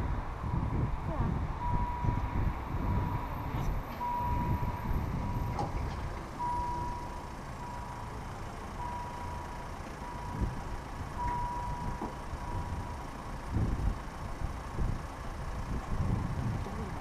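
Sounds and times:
level crossing warning bell: 0:01.6 - 0:05.6, 0:06.4 - 0:13.2.

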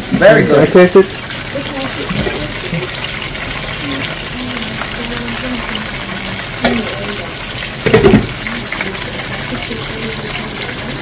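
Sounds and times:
oil sizzling in deep fryer: 0:00.0 - 0:11.0
knock: 0:07.9 - 0:08.3.

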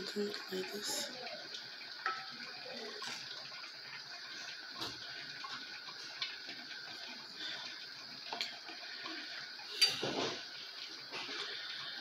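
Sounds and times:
gas stove hissing: 0:00.0 - 0:12.0.

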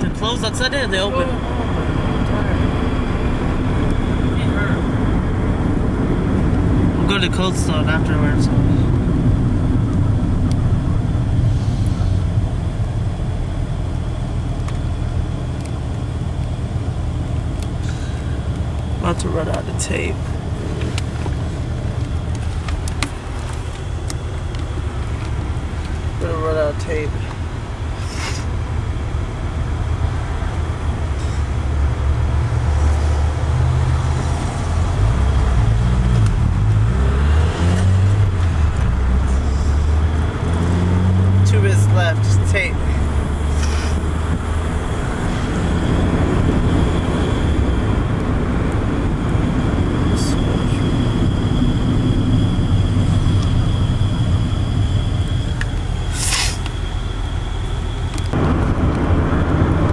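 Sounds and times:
car engine and road noise: 0:00.0 - 0:59.9
car engine accelerating: 0:29.6 - 0:56.1.

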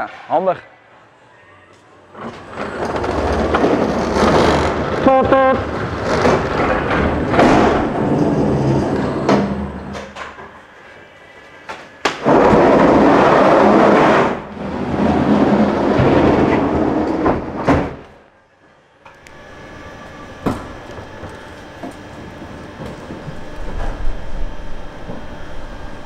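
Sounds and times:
pallet truck rumbling on metal floor: 0:02.2 - 0:10.2, 0:12.1 - 0:18.2, 0:19.4 - 0:26.0
sharp knocks: 0:20.4 - 0:22.0.

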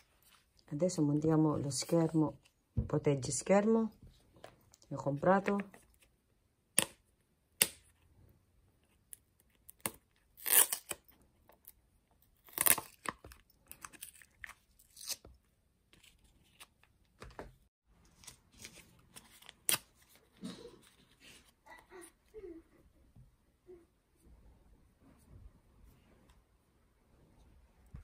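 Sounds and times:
packaging tearing: 0:10.4 - 0:11.0.

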